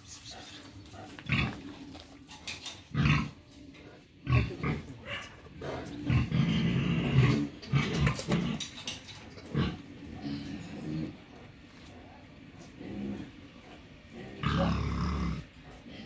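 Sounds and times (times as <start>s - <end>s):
dog growling: 12.7s - 16.0s.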